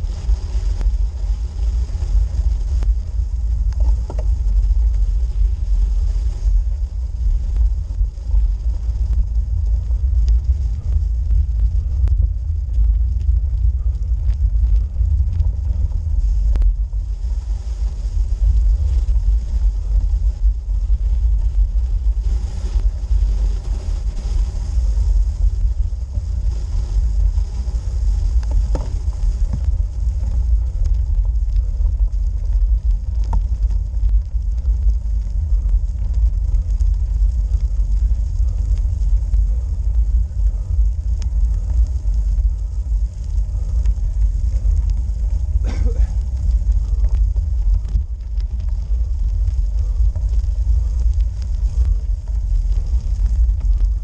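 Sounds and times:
bicycle rolling rumble: 0.0 - 54.0
faint clicks from rough surface: 3.7 - 4.4.

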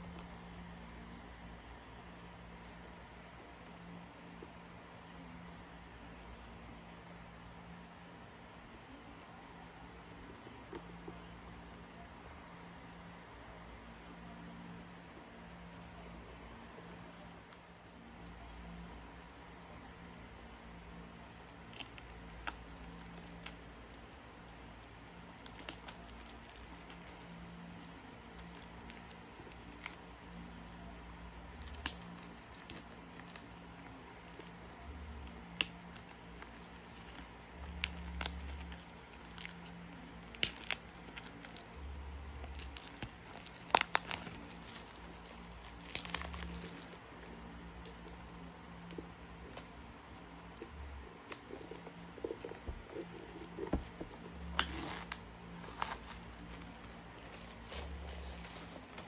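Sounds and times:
plastic wrap crinkling and tearing: 21.1 - 59.0.

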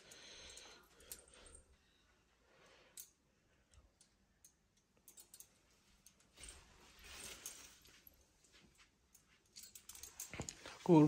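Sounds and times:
soft rustle: 5.1 - 11.0.

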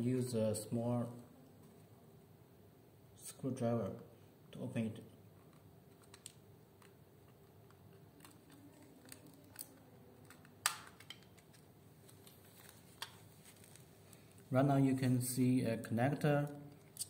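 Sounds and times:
plastic cover snapping off: 8.2 - 13.8.

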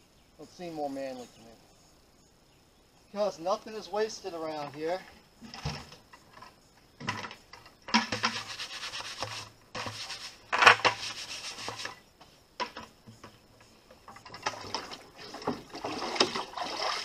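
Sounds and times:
plastic bucket scraping barrels: 7.0 - 12.0, 14.1 - 17.0.

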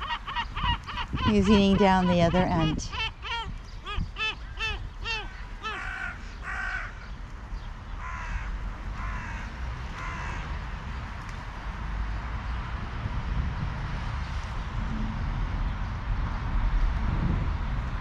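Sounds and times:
crows cawing: 0.0 - 7.1, 8.0 - 10.6
low rumble: 13.1 - 18.0.

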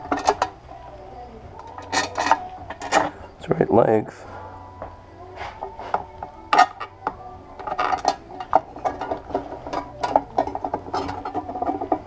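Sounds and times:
quiet music: 0.0 - 12.0.

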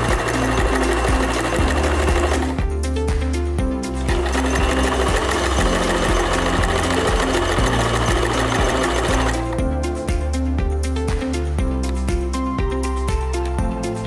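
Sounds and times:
sewing machine running: 0.0 - 2.7, 3.9 - 9.6
background music: 0.0 - 14.0.

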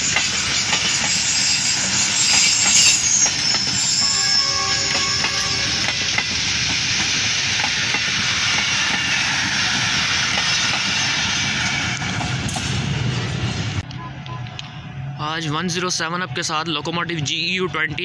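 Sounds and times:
train wheels rattling on rails: 0.0 - 13.9.

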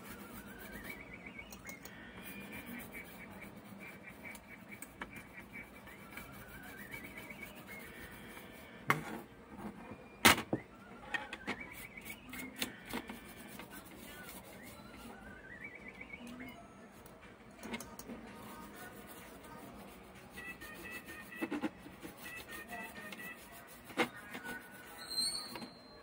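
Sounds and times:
toothbrush scrubbing circuit board: 0.0 - 8.8, 11.6 - 15.3, 17.8 - 25.5.

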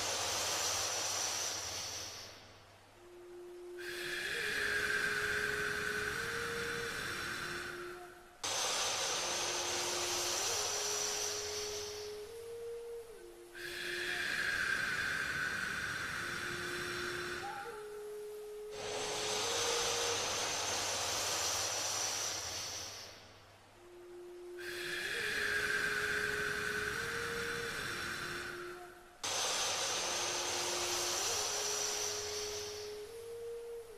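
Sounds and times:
faint held musical tones: 0.0 - 33.9
person breathing through nose: 3.8 - 12.5, 13.6 - 17.8, 18.7 - 23.3, 24.6 - 33.5.

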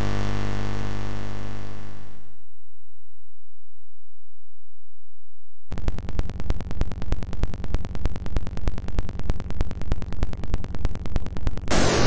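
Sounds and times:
noisy electronic signal clicks: 5.7 - 12.0.

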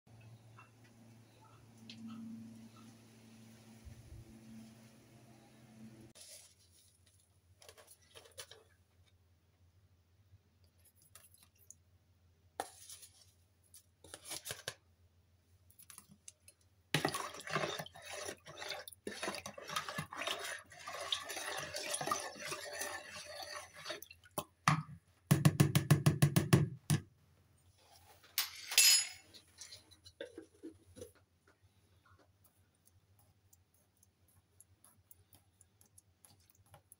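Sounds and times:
spoon scraping plastic bowl: 17.0 - 24.4
water sloshing: 17.0 - 24.6.

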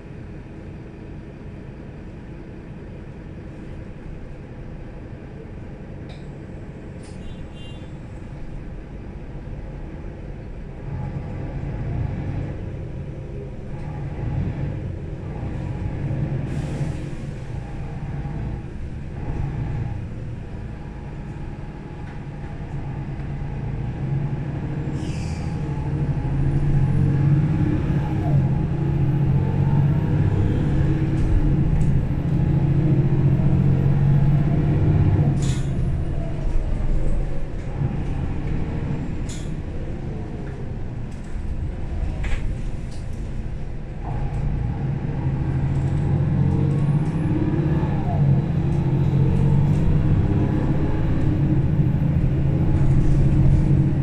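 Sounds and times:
bus engine rumbling: 0.0 - 54.0.

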